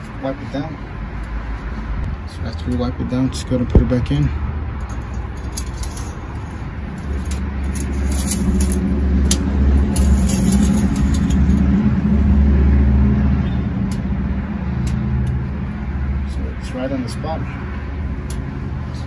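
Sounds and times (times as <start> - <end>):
vehicle engine running: 5.0 - 19.0.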